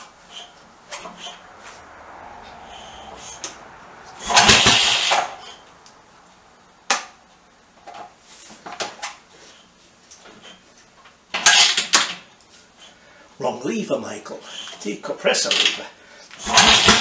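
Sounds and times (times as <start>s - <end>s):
motorcycle engine turning over: 2.6s - 5.7s, 11.3s - 12.3s, 16.4s - 17.0s.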